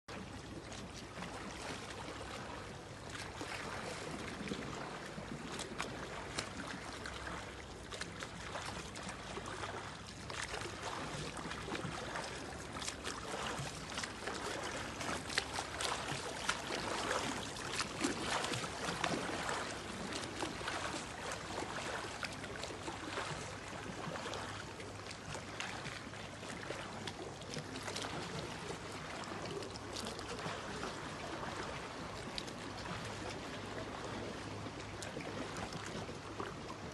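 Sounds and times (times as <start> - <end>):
steady wash of water: 0.1 - 36.9
swimmer splashing in water: 10.4 - 23.5.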